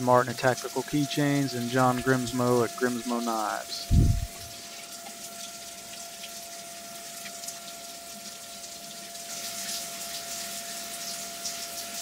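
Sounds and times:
coolant spraying and splashing: 0:00.0 - 0:12.0
steady tone: 0:00.9 - 0:04.6.

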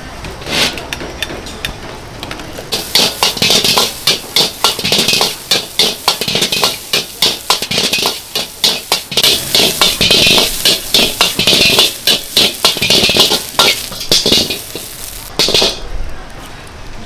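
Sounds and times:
spatula clanking on a wok: 0:02.7 - 0:15.8.

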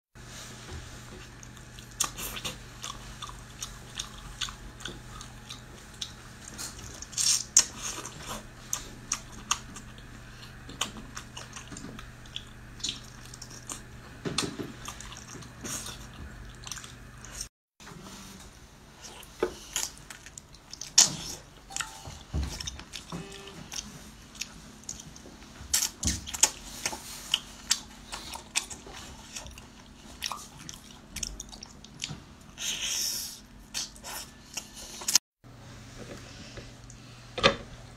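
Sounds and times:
wet chewing and sucking: 0:01.1 - 0:17.5.

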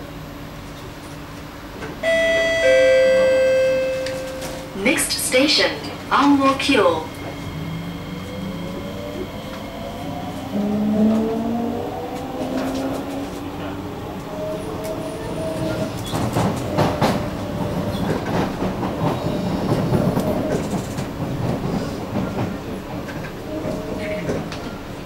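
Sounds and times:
train running rumble: 0:00.0 - 0:25.0
train traction motor whine: 0:01.6 - 0:16.1.

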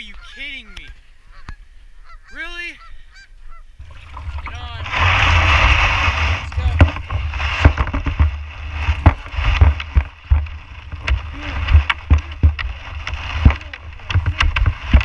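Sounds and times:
water knocking against plastic hull: 0:03.8 - 0:15.0.

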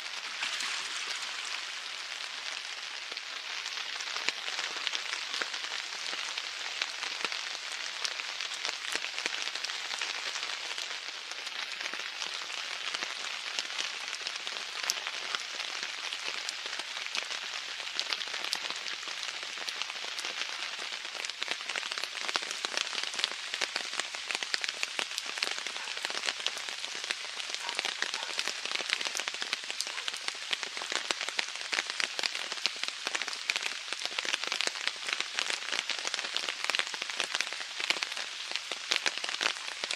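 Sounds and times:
rain on water and paving: 0:00.0 - 0:39.9.

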